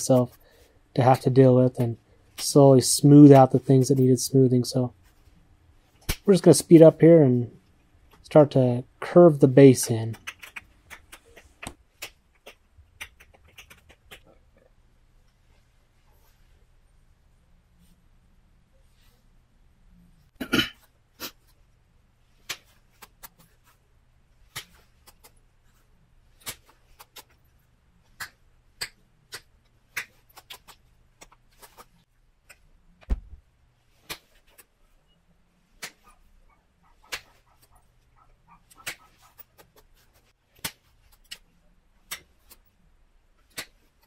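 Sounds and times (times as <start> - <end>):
low thump: 33.1 - 33.4.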